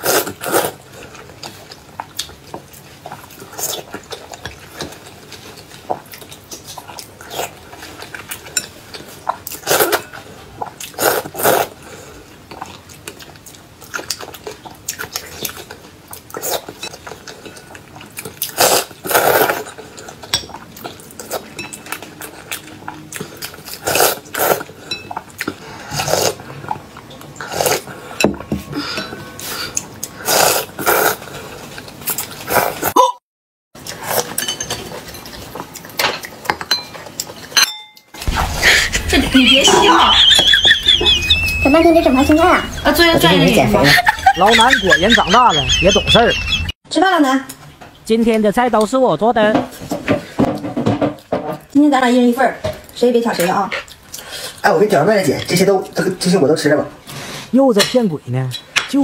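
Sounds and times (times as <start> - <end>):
chewing: 0.0 - 28.2, 29.2 - 32.9, 33.8 - 37.6, 52.8 - 54.7
noodles slurped: 9.1 - 12.3, 16.4 - 20.1, 23.3 - 24.8, 25.4 - 26.6, 29.4 - 33.0
chopsticks clinking against bowl: 36.5 - 38.2.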